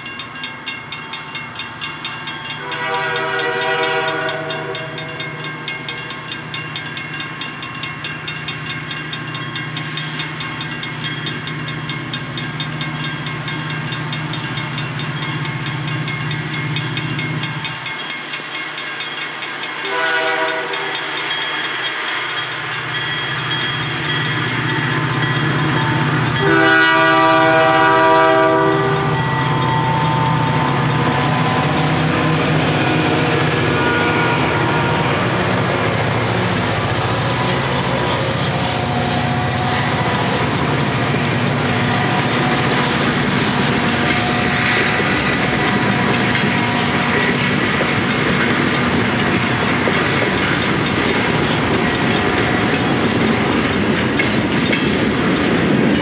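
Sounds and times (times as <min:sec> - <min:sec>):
diesel locomotive engines: 0:00.0 - 0:56.0
train horn: 0:02.6 - 0:05.3, 0:19.8 - 0:21.2, 0:25.9 - 0:36.1, 0:41.6 - 0:47.4.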